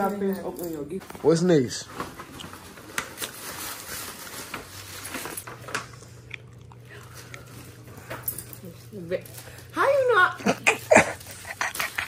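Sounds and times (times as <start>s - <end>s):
paper bag rustling and crinkling: 1.0s - 5.9s.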